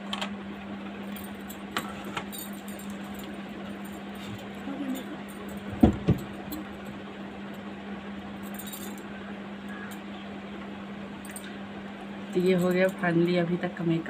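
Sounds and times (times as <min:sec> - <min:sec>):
steady low hum: 0:00.0 - 0:14.0
dull knocks: 0:05.7 - 0:06.3.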